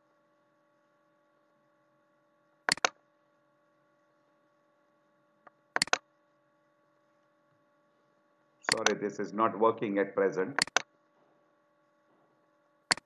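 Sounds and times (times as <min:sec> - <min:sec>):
faint electrical hum: 0:00.0 - 0:13.0
computer mouse clicks: 0:02.7 - 0:03.0, 0:05.8 - 0:06.0, 0:08.7 - 0:09.0, 0:10.6 - 0:10.9.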